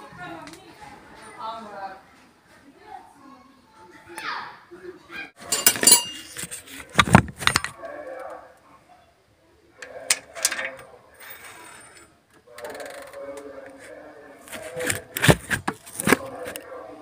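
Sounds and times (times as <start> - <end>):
metal parts and tools clinking: 5.4 - 7.8, 9.8 - 12.1.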